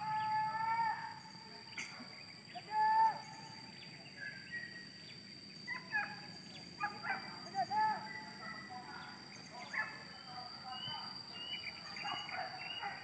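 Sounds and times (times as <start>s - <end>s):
high insect whine: 0.0s - 13.0s
distant dogs yelping and baying: 5.7s - 10.2s, 11.5s - 13.0s.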